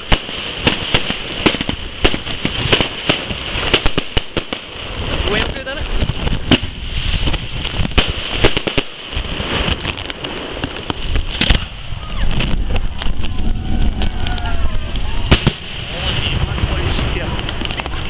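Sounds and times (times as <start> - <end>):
fireworks bangs: 0.0 - 18.0.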